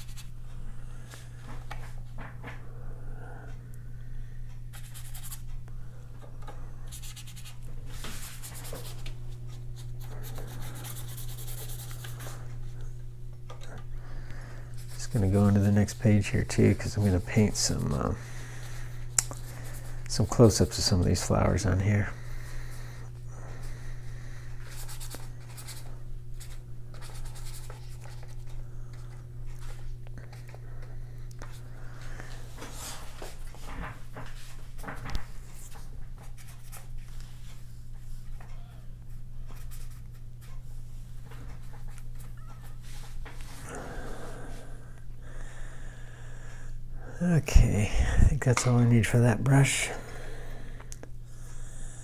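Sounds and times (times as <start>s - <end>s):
steady low hum: 0.0s - 52.0s
paintbrush scrubbing on paper: 6.9s - 9.1s, 9.8s - 12.4s, 14.8s - 21.3s, 24.6s - 28.5s.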